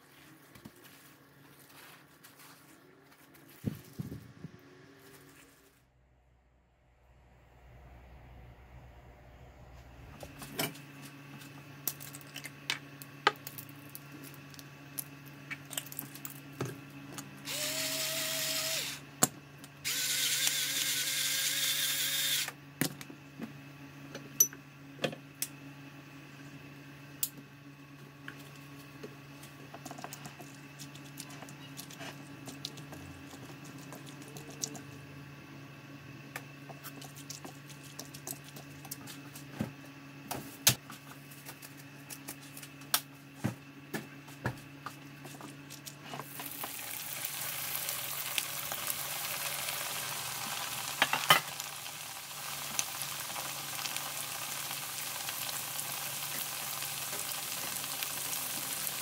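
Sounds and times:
faint steady hum: 0:00.0 - 0:59.0
electric pepper grinder: 0:17.4 - 0:19.1, 0:19.8 - 0:22.6, 0:46.2 - 0:59.0.

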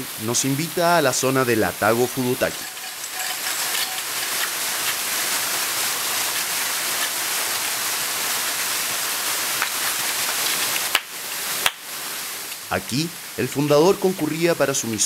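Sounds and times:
waterfall rushing: 0:00.0 - 0:14.6
sharp hand clap: 0:10.8 - 0:11.8.

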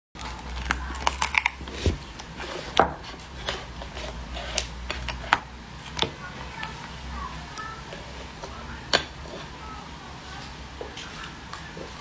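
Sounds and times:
steady low hum: 0:00.2 - 0:12.0.

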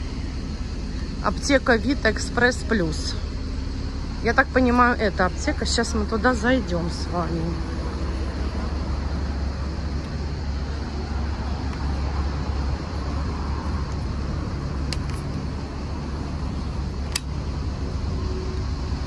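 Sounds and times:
traffic rumble: 0:00.0 - 0:19.0
short clicks: 0:17.1 - 0:17.4.

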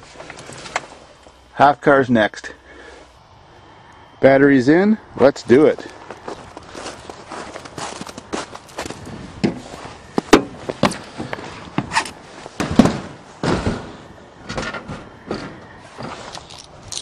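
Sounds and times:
car door and body clunks: 0:09.4 - 0:16.3.

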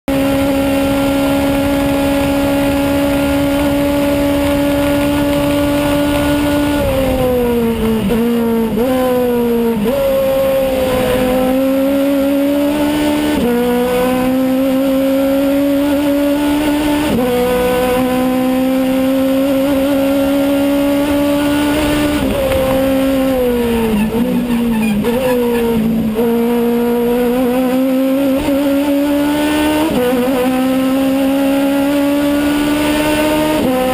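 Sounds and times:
racing car engine revving: 0:00.1 - 0:33.9.

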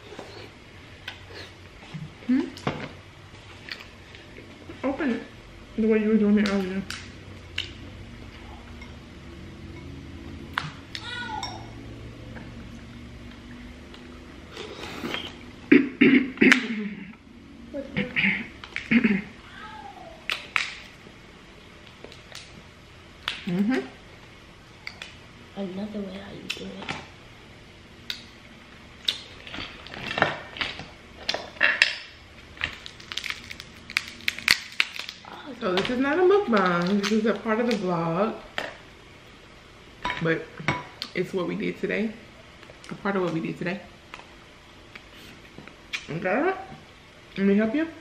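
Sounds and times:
low steady hum: 0:00.0 - 0:48.0
dishes clinking: 0:11.4 - 0:11.8
crab shells cracking by hand: 0:32.6 - 0:35.3.

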